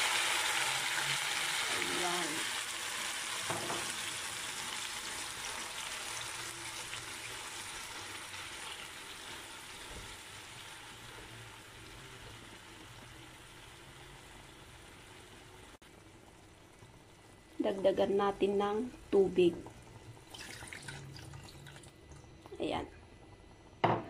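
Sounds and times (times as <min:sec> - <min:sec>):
fish sizzling in a frying pan: 0:00.0 - 0:16.5.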